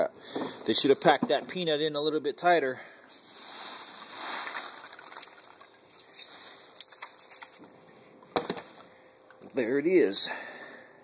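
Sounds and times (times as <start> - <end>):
packing peanuts rustling: 3.2 - 7.8.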